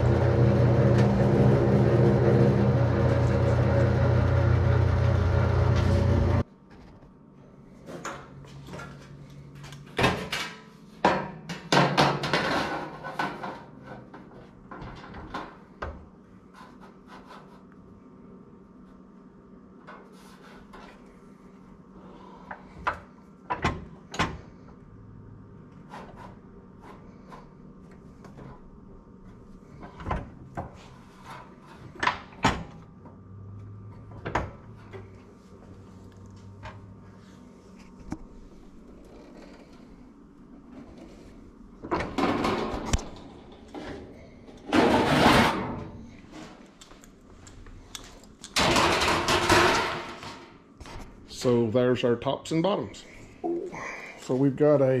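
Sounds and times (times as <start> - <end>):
sheet metal knocks and clanks: 48.6 - 50.5.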